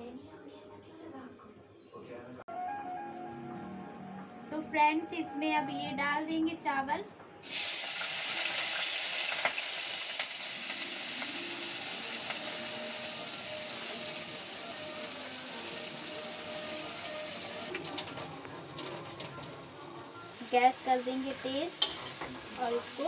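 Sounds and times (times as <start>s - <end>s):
rice sizzling in hot ghee: 7.4s - 19.4s, 20.2s - 23.0s.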